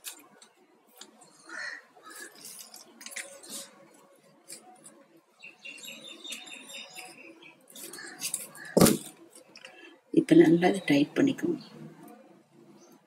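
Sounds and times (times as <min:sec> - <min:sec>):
plastic wire rustling and clicking: 0:00.0 - 0:01.3, 0:02.1 - 0:05.0.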